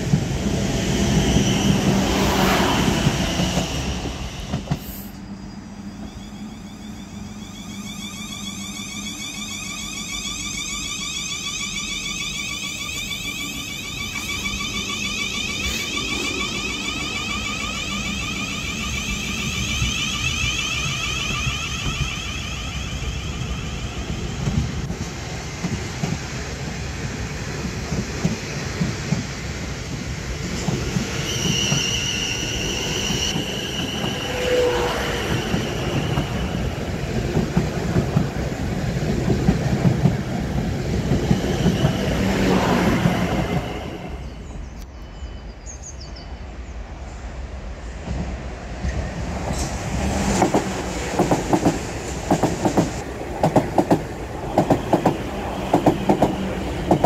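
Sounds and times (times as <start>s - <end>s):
train rail rumble: 0.0s - 57.0s
high whine: 0.4s - 25.7s
brief high squeal: 3.6s - 24.7s, 31.1s - 36.7s.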